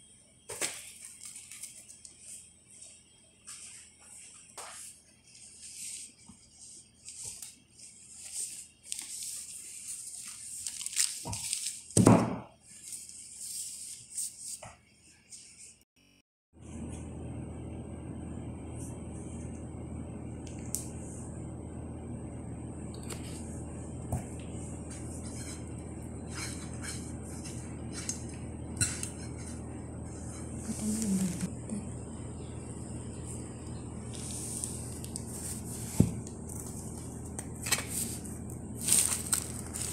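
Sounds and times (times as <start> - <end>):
cloth and plastic rustling: 7.1 - 12.0, 34.1 - 39.9
steady hum: 16.0 - 39.9.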